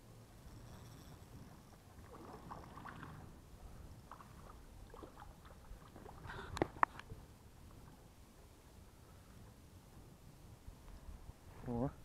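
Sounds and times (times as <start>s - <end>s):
faint water splashing: 1.7s - 8.3s.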